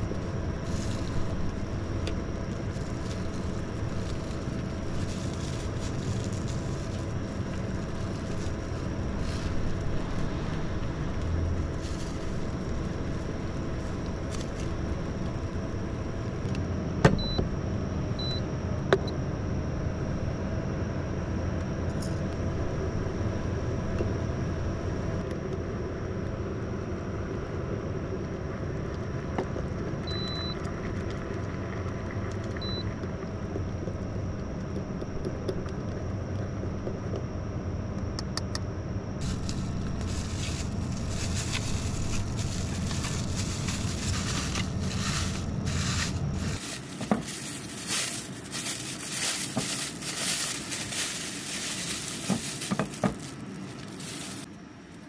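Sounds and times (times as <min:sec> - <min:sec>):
plastic bag crinkling: 0:00.0 - 0:15.6, 0:39.2 - 0:55.0
steady low hum: 0:00.0 - 0:55.0.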